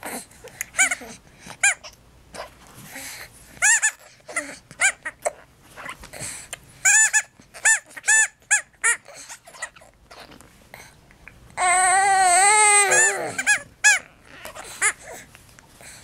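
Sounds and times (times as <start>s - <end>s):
rubber toy squeaking: 0.8s - 2.0s, 3.6s - 6.0s, 6.8s - 10.3s, 11.6s - 15.1s.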